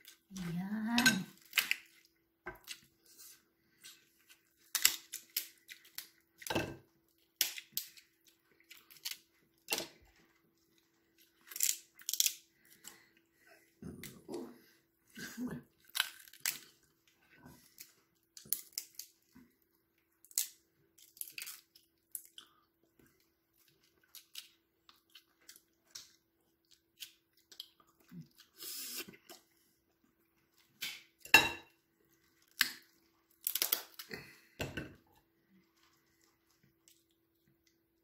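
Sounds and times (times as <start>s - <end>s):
crab shell cracking: 1.4s - 2.0s, 4.6s - 6.2s, 7.4s - 8.1s, 11.4s - 12.5s, 15.9s - 16.8s, 20.2s - 22.4s, 32.5s - 34.1s.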